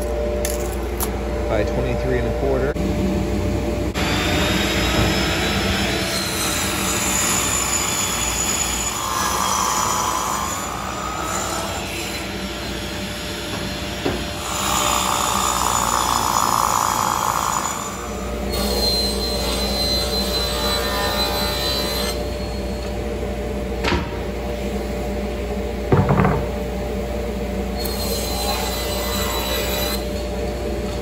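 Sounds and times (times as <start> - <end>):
table saw running: 3.9 - 22.4.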